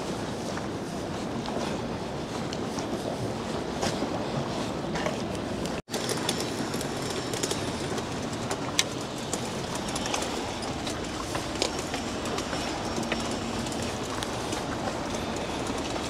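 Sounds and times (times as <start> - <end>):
train rumbling past: 0.0 - 16.0
footsteps on stone: 4.9 - 16.0
train wheel clicks: 5.0 - 16.0.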